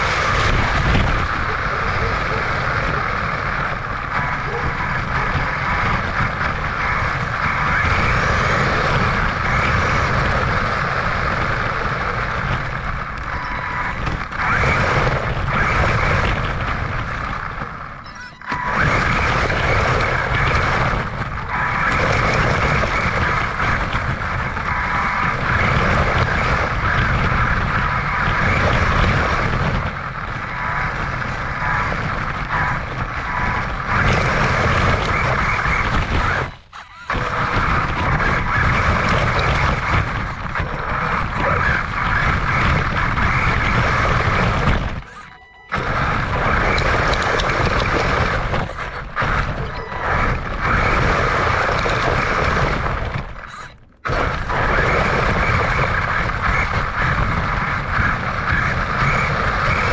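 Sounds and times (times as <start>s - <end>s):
electric rc car motor whirring: 0.0s - 53.3s, 54.1s - 59.9s.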